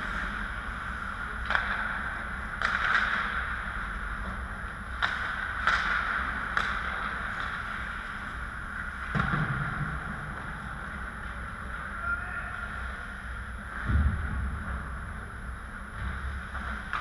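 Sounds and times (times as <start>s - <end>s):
stick hitting puck: 1.4s - 3.6s, 4.9s - 8.0s, 9.0s - 9.9s.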